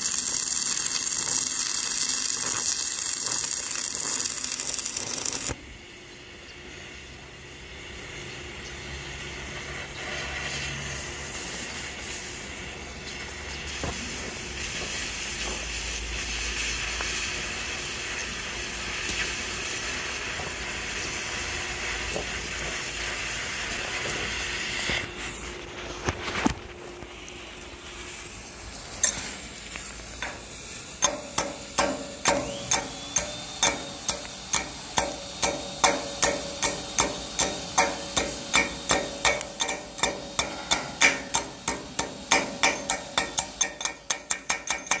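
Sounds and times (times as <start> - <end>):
arc welding crackle: 0.0 - 5.8, 8.8 - 45.0
chipping hammer on steel: 30.2 - 45.0.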